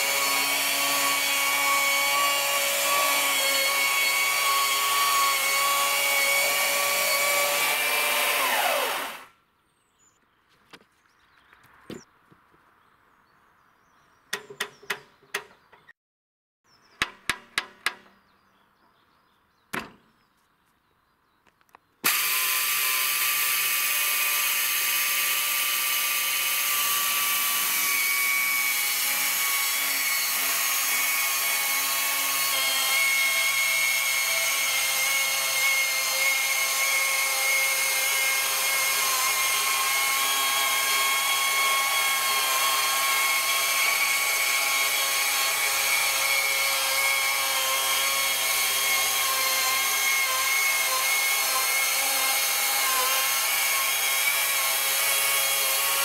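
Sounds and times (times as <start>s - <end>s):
electric chainsaw cutting log: 0.0s - 9.4s, 22.0s - 56.0s
sharp knocks: 17.0s - 18.1s.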